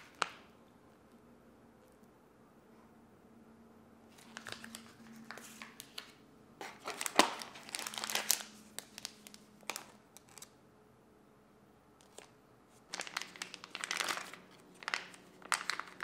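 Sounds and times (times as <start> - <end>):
plastic packets crinkling: 4.1 - 10.6, 12.0 - 16.0.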